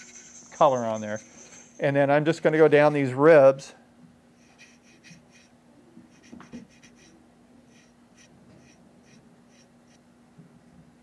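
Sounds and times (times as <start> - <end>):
brush scratching strokes: 0.0 - 1.9, 4.4 - 5.5, 6.1 - 10.0
steady low hum: 0.0 - 11.0.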